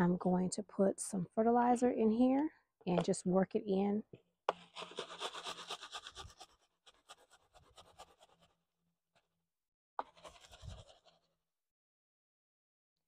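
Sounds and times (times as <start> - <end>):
gloved hand scratching soil: 4.6 - 8.6, 10.0 - 11.3.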